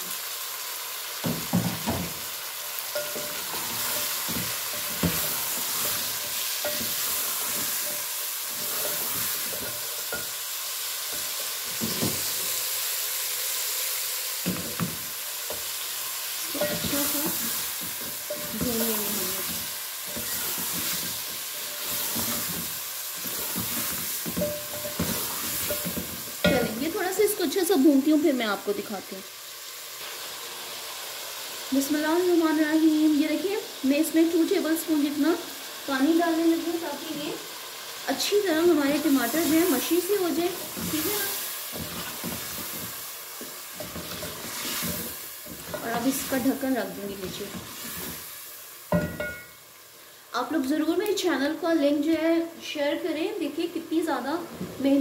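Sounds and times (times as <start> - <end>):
food sizzling in oil: 0.0 - 55.0
wooden spatula scraping pot: 3.0 - 10.3, 16.5 - 26.9, 38.9 - 46.5.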